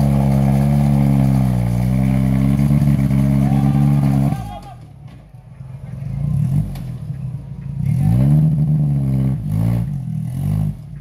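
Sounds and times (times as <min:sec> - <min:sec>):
buggy engine revving hard: 0:00.0 - 0:04.4, 0:07.8 - 0:10.9.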